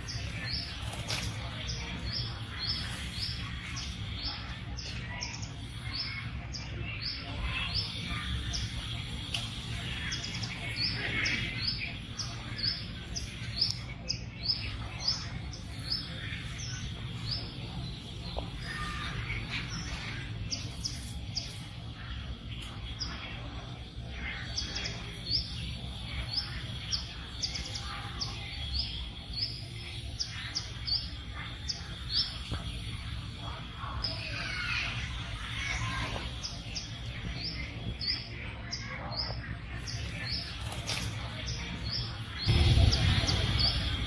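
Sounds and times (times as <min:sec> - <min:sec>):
small birds chirping: 0:00.0 - 0:44.0
low background rumble: 0:42.3 - 0:44.0.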